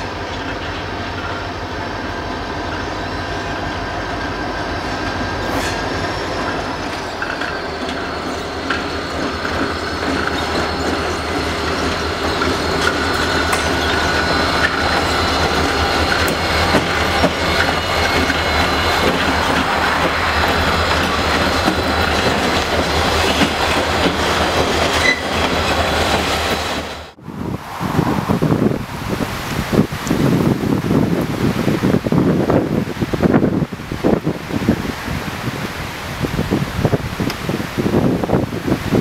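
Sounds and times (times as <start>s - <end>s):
train wheels rumbling on rail: 0.0s - 39.0s
faint high wheel squeal: 1.1s - 26.6s
wind on microphone: 27.2s - 39.0s.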